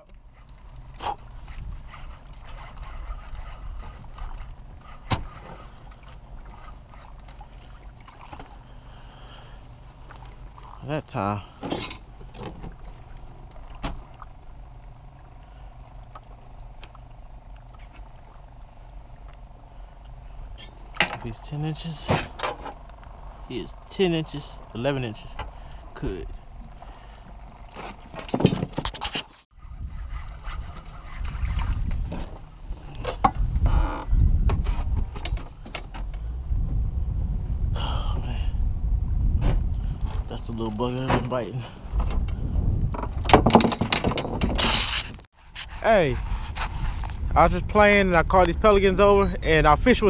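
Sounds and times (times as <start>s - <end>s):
low mechanical hum: 0.0s - 28.6s
wind buffeting microphone: 0.2s - 7.1s, 29.5s - 50.0s
sharp clicks and knocks: 42.9s - 45.2s.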